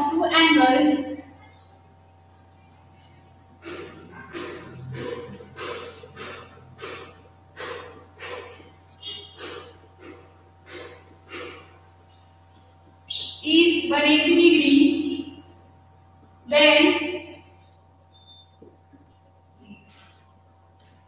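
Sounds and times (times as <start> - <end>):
marker scratching on whiteboard: 3.6 - 11.8
marker squeak: 8.2 - 10.2, 17.6 - 20.2.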